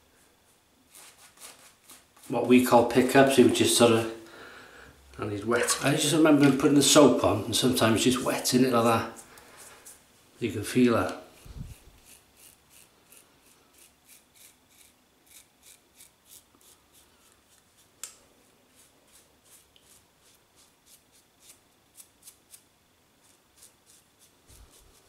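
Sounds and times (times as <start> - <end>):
razor scraping stubble: 0.9 - 3.6, 11.0 - 22.6, 23.2 - 25.0.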